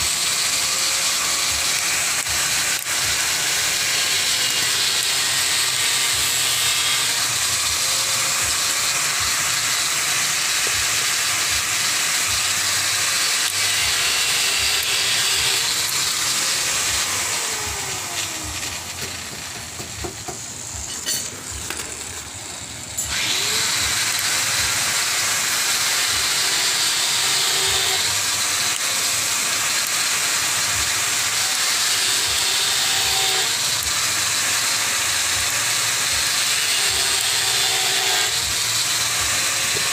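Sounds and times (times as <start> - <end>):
electric motor and gears whirring: 0.0 - 39.9.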